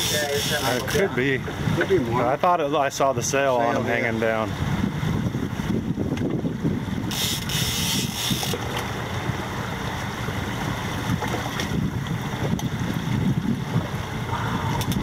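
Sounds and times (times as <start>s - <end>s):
outboard motors running: 0.0s - 15.0s
water churning: 0.0s - 15.0s
wind buffeting microphone: 0.0s - 15.0s.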